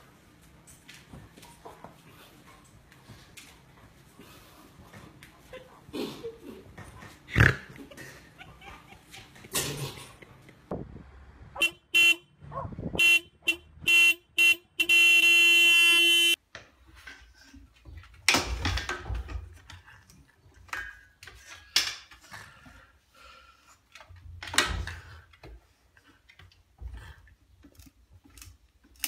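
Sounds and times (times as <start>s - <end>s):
car horn honking: 11.6s - 12.4s, 13.0s - 16.4s.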